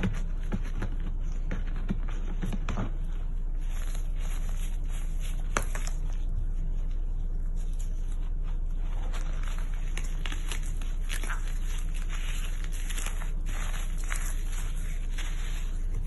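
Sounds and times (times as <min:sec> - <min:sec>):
steady low hum: 0:00.0 - 0:16.0
dry clay crunching and crumbling: 0:07.6 - 0:16.0.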